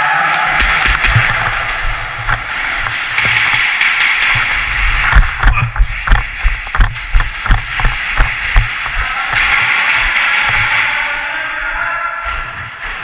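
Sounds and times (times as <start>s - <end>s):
footsteps running on a hard floor: 4.3s - 10.7s.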